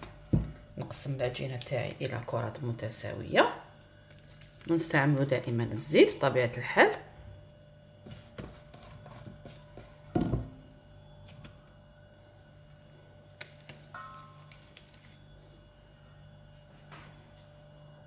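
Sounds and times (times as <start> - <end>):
steady low hum: 0.0 - 18.0
hands squishing bread dough: 3.6 - 6.3, 8.0 - 15.8.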